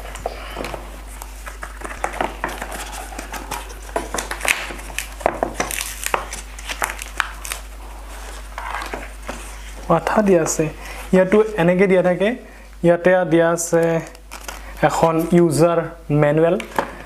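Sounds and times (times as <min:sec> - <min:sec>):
cardboard rustling and scraping: 0:00.0 - 0:11.6.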